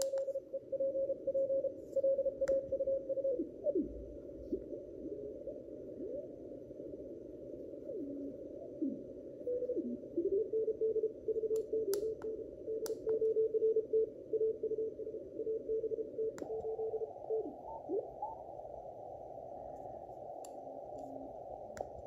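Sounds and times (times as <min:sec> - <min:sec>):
radio hiss: 0:13.4 - 0:22.0.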